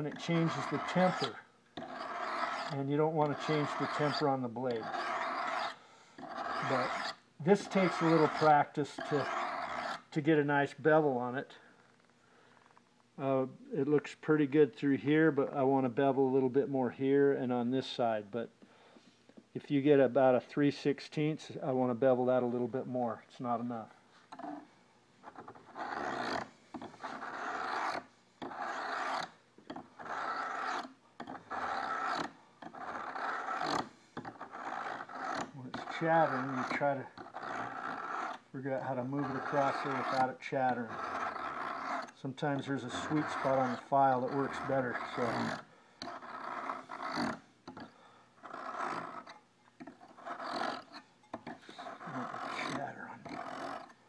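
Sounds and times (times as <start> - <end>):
hand file rasping on steel blade: 0.0 - 10.1, 25.2 - 54.0.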